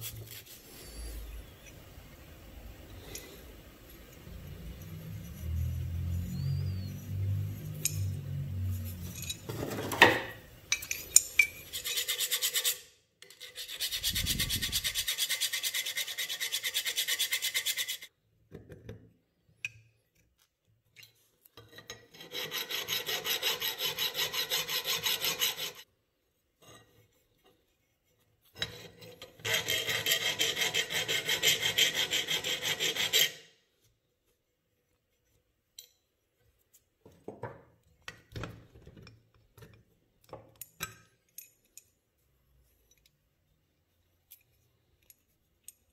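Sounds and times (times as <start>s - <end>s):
file rasping on metal: 11.6s - 18.1s, 22.1s - 25.9s, 28.7s - 33.5s.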